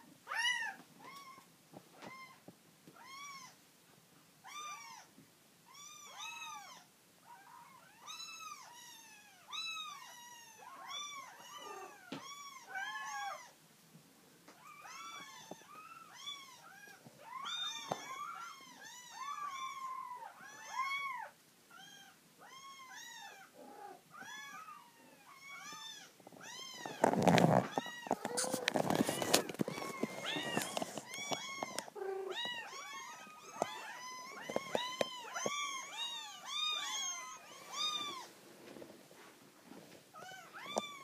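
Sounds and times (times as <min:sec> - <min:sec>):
kittens mewing: 0:14.6 - 0:38.3.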